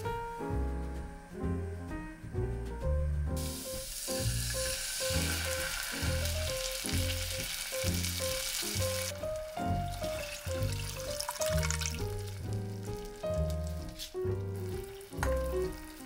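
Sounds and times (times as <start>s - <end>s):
food sizzling in oil: 3.4s - 16.0s.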